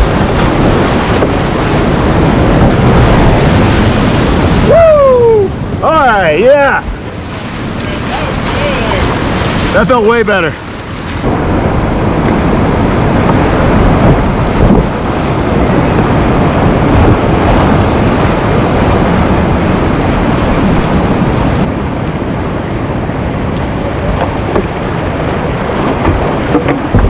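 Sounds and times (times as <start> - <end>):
whitewater rapids rushing: 0.0 - 11.5.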